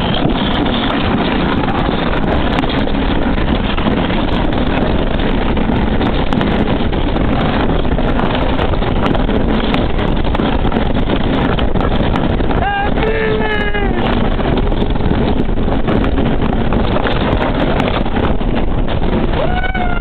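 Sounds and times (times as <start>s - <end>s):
sled rushing rumble on track: 0.0s - 20.0s
wind buffeting microphone: 0.0s - 20.0s.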